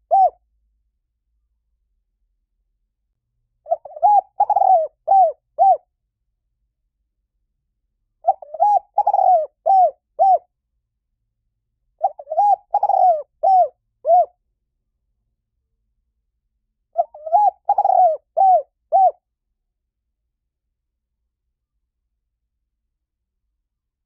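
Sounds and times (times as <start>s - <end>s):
dove cooing: 0.0s - 0.4s, 3.6s - 5.8s, 8.2s - 10.5s, 12.0s - 14.3s, 17.0s - 19.2s.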